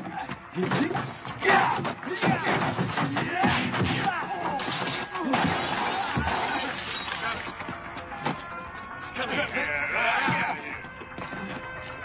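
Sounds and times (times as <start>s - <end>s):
blows and crashes: 1.0s - 7.5s
glass shattering: 4.6s - 7.6s.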